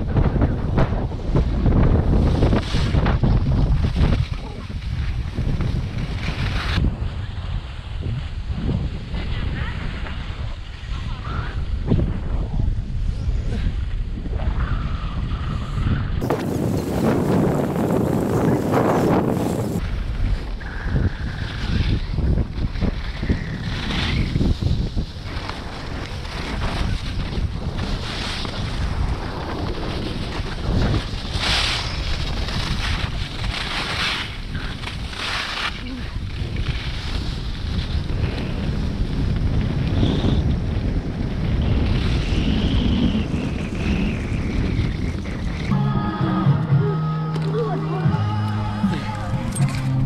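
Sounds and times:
wind buffeting microphone: 0.0s - 45.8s
skis scraping on snow: 1.0s - 11.5s, 16.2s - 45.7s.

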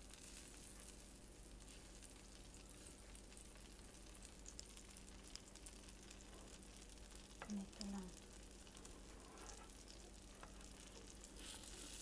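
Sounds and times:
butter sizzling in frying pan: 0.0s - 12.0s.

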